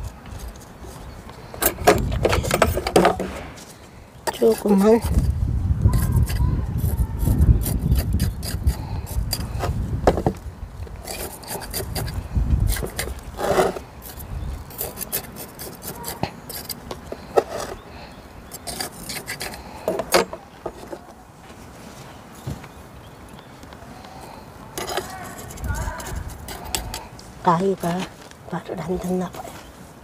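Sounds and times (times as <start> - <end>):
grit scratching against a pot: 4.3 - 9.8, 11.0 - 17.8, 18.5 - 20.0, 24.8 - 27.6.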